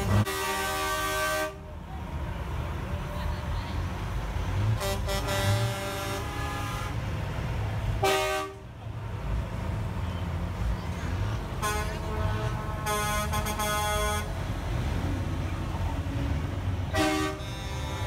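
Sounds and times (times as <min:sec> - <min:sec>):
truck air horns blowing: 0:00.0 - 0:01.7, 0:04.6 - 0:07.1, 0:08.0 - 0:08.7, 0:11.5 - 0:14.4, 0:16.9 - 0:18.0
diesel trucks rumbling: 0:00.0 - 0:18.0.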